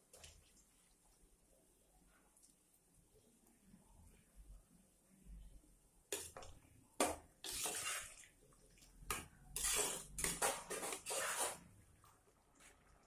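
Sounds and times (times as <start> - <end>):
ladle scraping metal pot: 6.2 - 8.3, 9.1 - 11.7.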